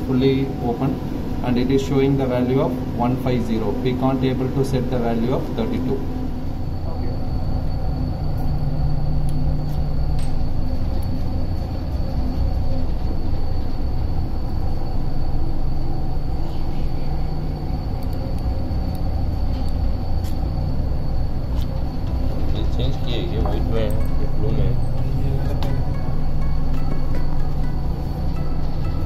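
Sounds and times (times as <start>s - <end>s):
machinery low drone: 0.0s - 29.0s
thin high tone: 22.3s - 29.0s.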